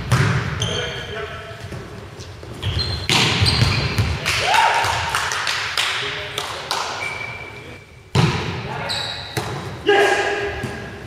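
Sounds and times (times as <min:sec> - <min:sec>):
volleyball hits ringing in hall: 0:00.0 - 0:01.0, 0:02.6 - 0:11.0
shoe squeaks on wooden court: 0:00.6 - 0:01.2, 0:02.2 - 0:04.1, 0:07.0 - 0:07.9, 0:08.8 - 0:09.4.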